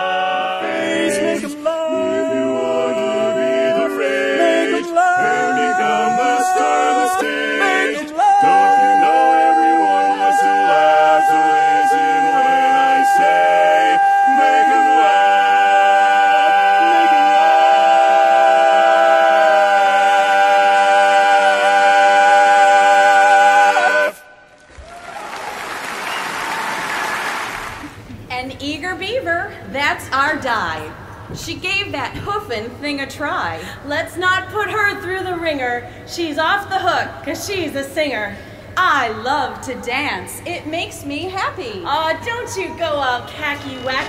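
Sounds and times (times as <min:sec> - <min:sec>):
men singing a cappella harmony: 0:00.0 - 0:24.4.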